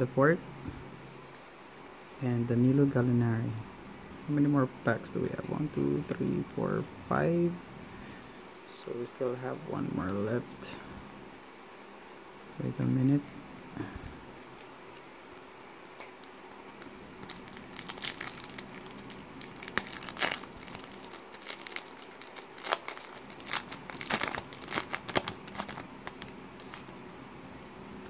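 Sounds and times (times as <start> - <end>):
foil pack crinkling and tearing: 13.9 - 27.1.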